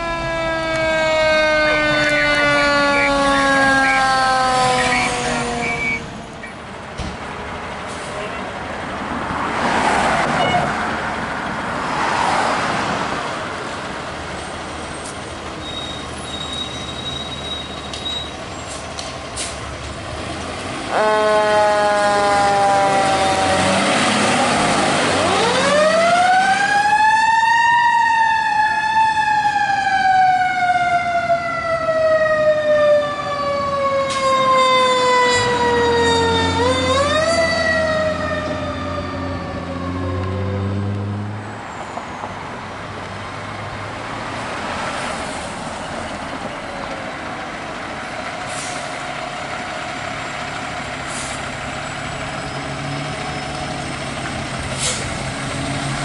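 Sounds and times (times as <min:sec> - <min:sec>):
siren wailing: 0:00.0 - 0:06.2, 0:20.9 - 0:41.0
fire engine engine: 0:00.0 - 0:56.0.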